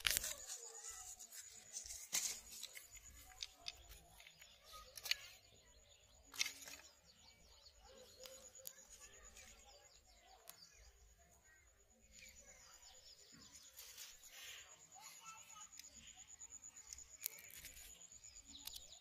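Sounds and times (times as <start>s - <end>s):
handling clicks and rustles: 0.0s - 5.6s, 6.2s - 7.2s
faint bird chirps: 0.0s - 19.0s
sharp clicks: 16.7s - 19.0s.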